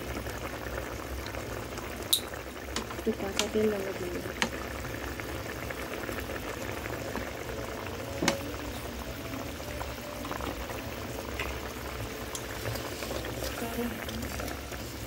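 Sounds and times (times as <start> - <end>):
thick sauce bubbling and crackling: 0.0 - 15.0.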